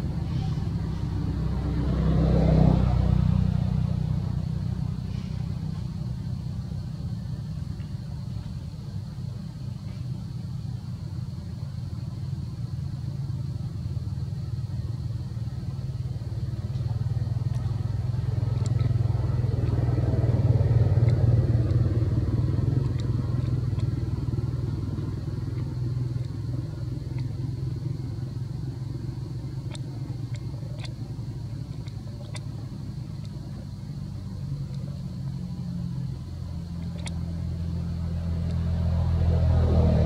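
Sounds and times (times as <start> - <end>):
engine running: 0.0 - 40.0
faint sharp clicks: 16.5 - 38.8.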